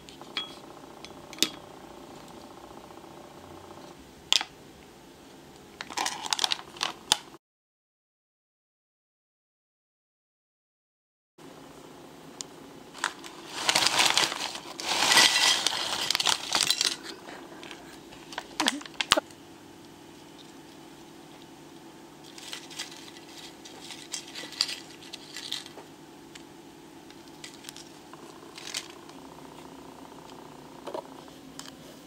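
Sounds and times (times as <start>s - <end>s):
chips being handled: 5.8s - 7.0s, 13.0s - 19.2s, 20.1s - 26.5s, 27.1s - 29.2s
chip bag crinkling: 5.8s - 7.2s, 13.0s - 19.2s, 22.2s - 25.9s, 27.1s - 29.3s.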